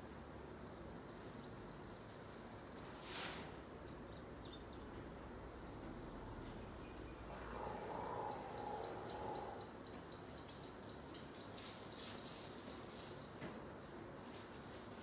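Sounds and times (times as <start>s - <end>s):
soft rustle: 2.8s - 3.7s, 11.6s - 15.0s
bird chirping: 3.8s - 13.4s.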